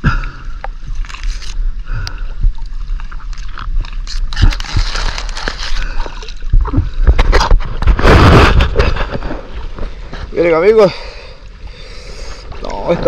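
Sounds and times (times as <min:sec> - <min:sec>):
steady low rumble: 0:00.0 - 0:13.0
water sloshing and splashing: 0:00.6 - 0:10.8.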